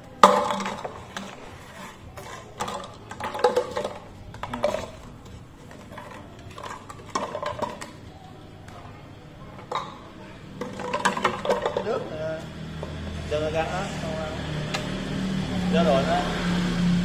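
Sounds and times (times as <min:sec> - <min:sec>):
nuts rattling in bottle: 0:00.2 - 0:08.0, 0:09.6 - 0:12.0.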